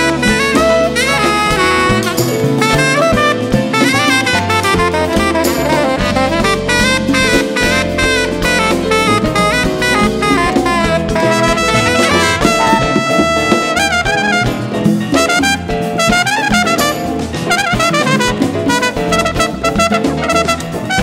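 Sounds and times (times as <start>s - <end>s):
tenor saxophone: 0.0s - 14.7s
bass: 0.0s - 21.0s
drums and percussion: 0.0s - 21.0s
trumpet: 0.0s - 21.0s.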